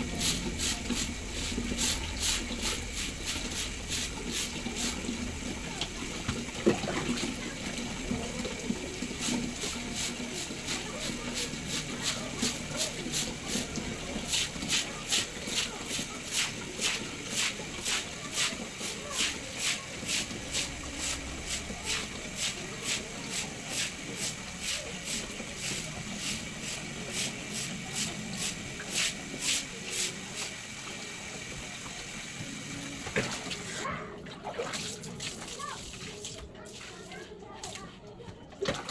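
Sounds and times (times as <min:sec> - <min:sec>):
broom sweeping concrete floor: 0:00.0 - 0:05.1, 0:09.2 - 0:30.6, 0:34.8 - 0:38.0
water sloshing and splashing: 0:00.0 - 0:15.4, 0:32.9 - 0:38.9.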